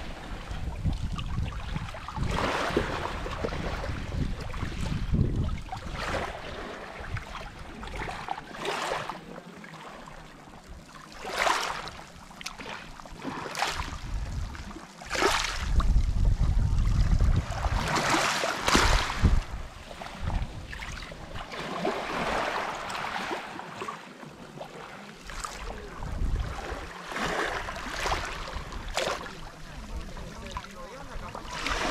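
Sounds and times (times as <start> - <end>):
microphone rumble: 0.0 - 6.4, 13.8 - 21.4, 25.5 - 31.9
waves lapping on pebbles: 0.0 - 10.1, 10.8 - 31.9.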